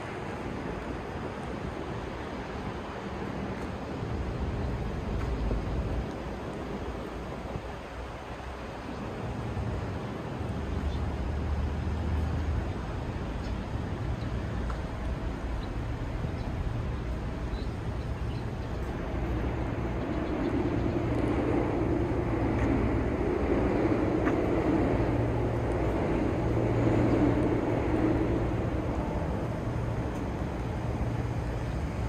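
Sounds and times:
city ambience: 0:00.0 - 0:32.0
low engine drone: 0:13.9 - 0:32.0.

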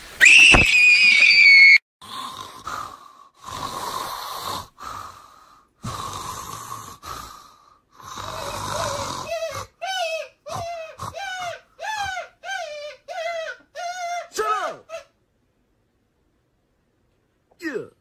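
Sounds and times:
high-pitched scream: 0:00.2 - 0:01.8
person snoring: 0:02.0 - 0:11.7.

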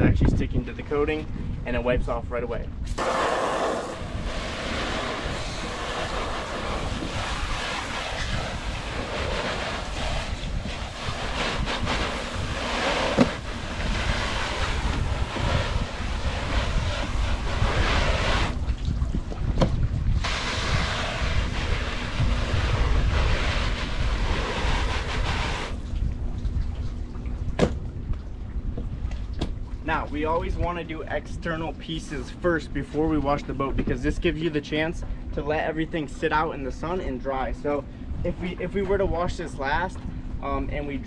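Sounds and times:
wind rumble on microphone: 0:00.0 - 0:41.0
water spraying from hose: 0:02.9 - 0:18.9, 0:19.5 - 0:26.1.

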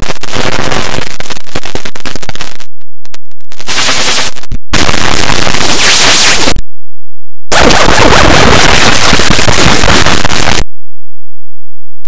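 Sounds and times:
dense rapid crackle of clicks: 0:00.0 - 0:06.6
distorted clipped noise: 0:00.0 - 0:06.6, 0:07.5 - 0:10.7.

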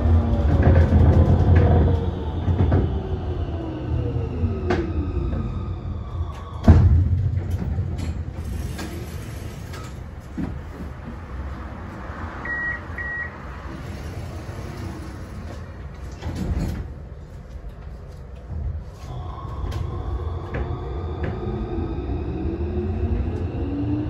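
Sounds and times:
tram rumbling on track: 0:00.0 - 0:24.0
tram track knocks: 0:06.4 - 0:17.2.

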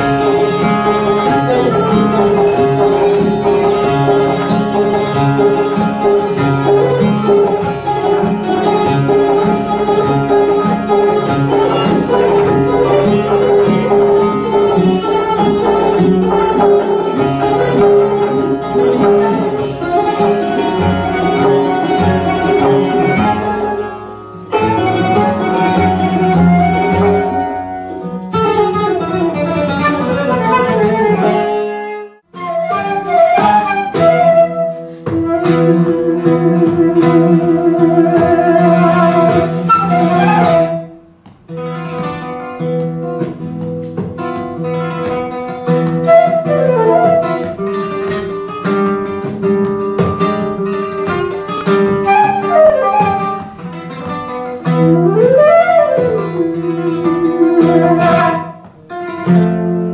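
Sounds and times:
flamenco guitar: 0:00.0 - 0:59.9
sliding flute melody: 0:19.0 - 0:28.1, 0:29.8 - 0:41.0, 0:45.9 - 0:47.7, 0:51.9 - 0:53.7, 0:54.7 - 0:58.7
frame drum strokes: 0:34.8 - 0:40.6.

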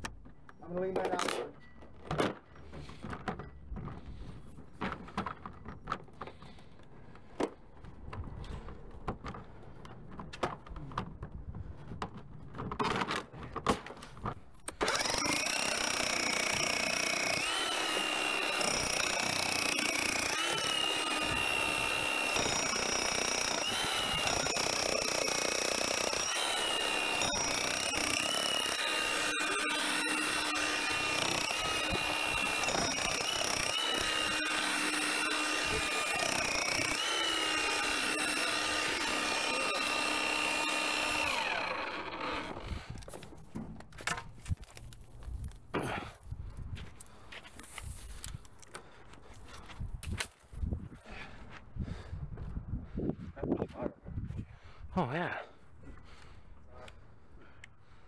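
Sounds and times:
power tool whining: 0:14.6 - 0:43.5.

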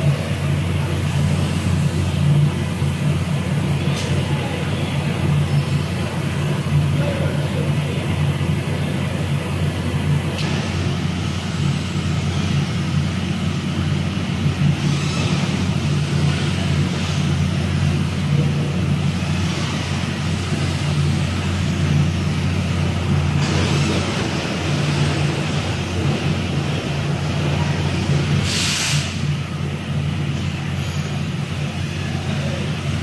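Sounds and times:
workshop machinery hum: 0:00.0 - 0:33.0.

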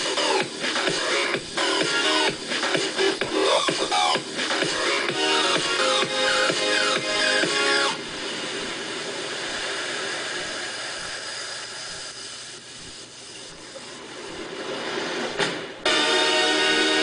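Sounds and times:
electronic dance beat: 0:00.0 - 0:17.0
hissing noise wash: 0:00.0 - 0:17.0.

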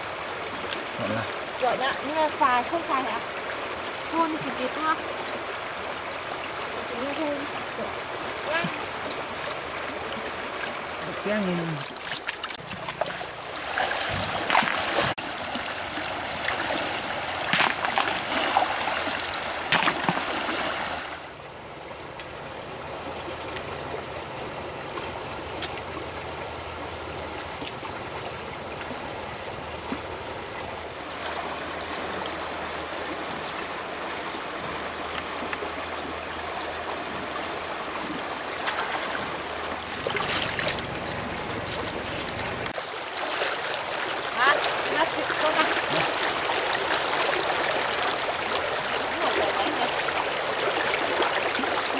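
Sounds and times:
stream water running: 0:00.0 - 0:51.9
mud squelching by hand: 0:39.9 - 0:42.7.

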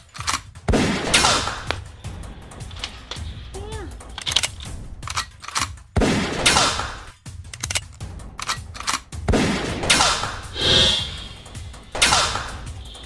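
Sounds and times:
gunshots: 0:00.1 - 0:01.8, 0:04.1 - 0:07.1, 0:11.9 - 0:12.7.

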